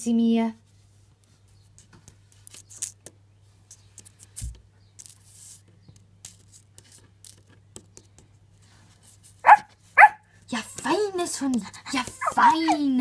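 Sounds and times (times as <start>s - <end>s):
dog barking: 9.4s - 10.2s.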